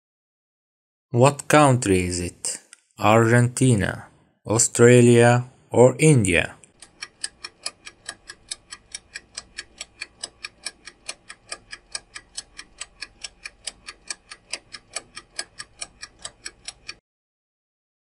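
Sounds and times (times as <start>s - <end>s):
clock-style timer ticking: 4.6s - 17.0s.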